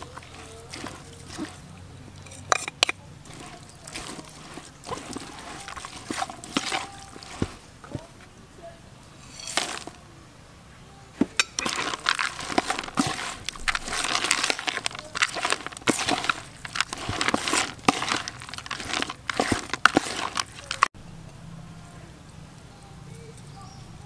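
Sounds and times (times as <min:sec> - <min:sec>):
spoon scraping plastic bowl: 0:00.0 - 0:08.1, 0:09.1 - 0:10.0, 0:11.2 - 0:20.9.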